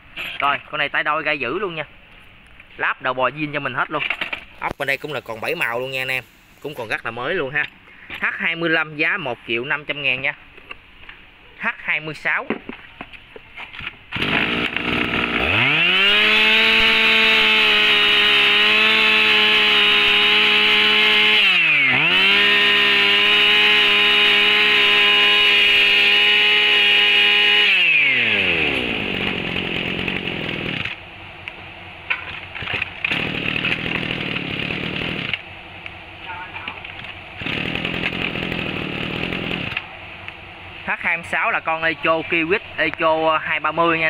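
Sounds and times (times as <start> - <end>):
brush cutter engine running: 14.1 - 31.0, 32.6 - 35.4, 37.4 - 39.8.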